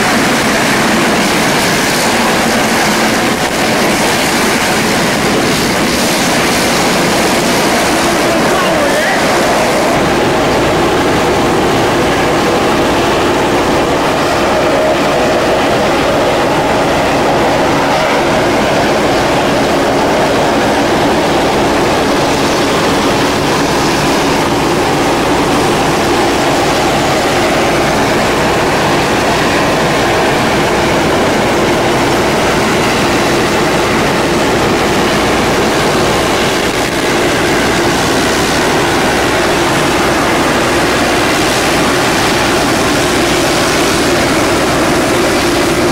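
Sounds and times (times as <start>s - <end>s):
turboprop engines droning: 0.0s - 45.9s.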